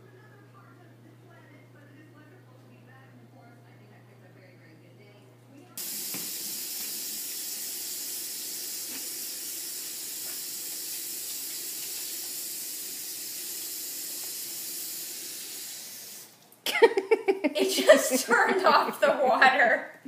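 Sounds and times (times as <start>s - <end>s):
faucet water splashing into sink: 5.8s - 16.3s.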